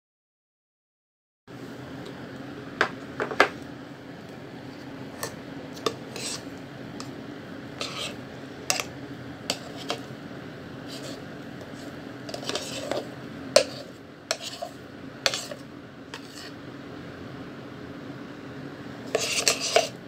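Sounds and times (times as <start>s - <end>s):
low steady hum: 1.5s - 20.0s.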